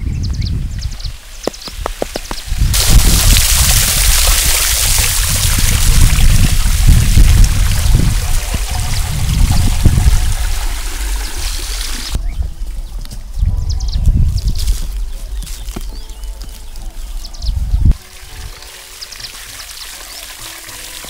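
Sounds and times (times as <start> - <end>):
water pouring and splashing: 1.4 - 12.2, 17.9 - 21.0.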